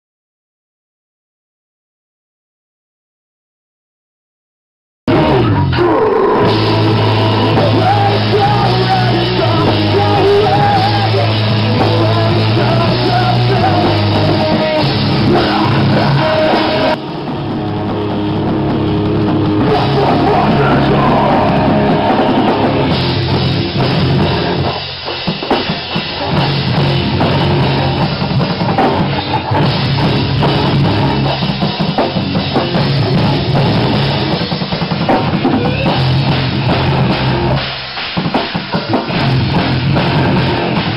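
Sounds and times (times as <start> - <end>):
vocalist singing: 5.1 - 17.1, 19.5 - 22.9
rock band playing: 5.1 - 40.9.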